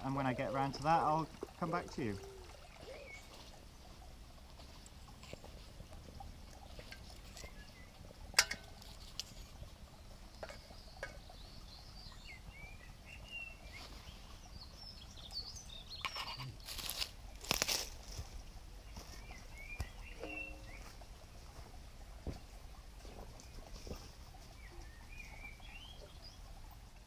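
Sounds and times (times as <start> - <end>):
birds chirping: 0.0 - 16.7, 18.1 - 27.0
twig fire crackling: 16.6 - 18.3.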